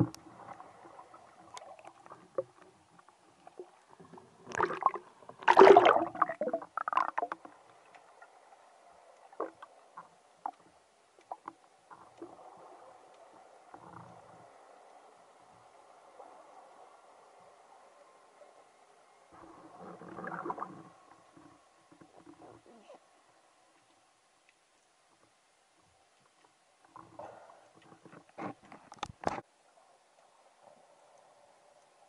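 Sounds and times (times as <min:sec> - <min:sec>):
water splashing and gurgling: 0:00.0 - 0:07.6, 0:19.4 - 0:22.7
faint underwater hiss: 0:00.0 - 0:32.0
small ticks underwater: 0:00.0 - 0:32.0.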